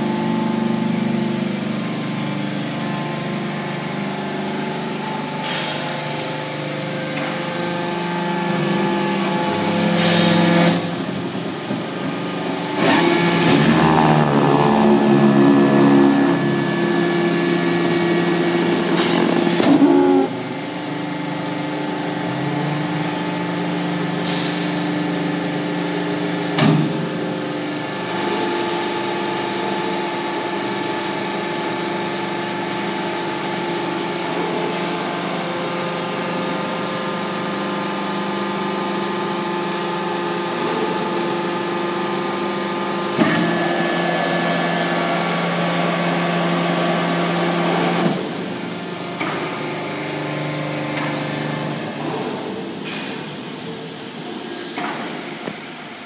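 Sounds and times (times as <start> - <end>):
hydraulic power pack humming: 7.0 - 20.6.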